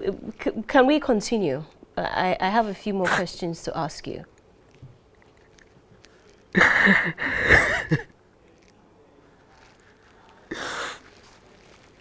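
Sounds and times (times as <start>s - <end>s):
man sobbing: 6.6s - 8.0s.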